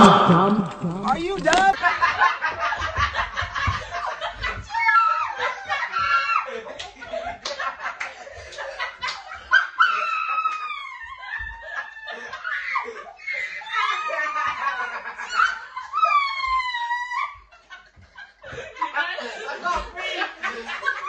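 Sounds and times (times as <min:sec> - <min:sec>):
group of people laughing: 0:00.0 - 0:21.0
long squealing laugh: 0:09.5 - 0:17.4.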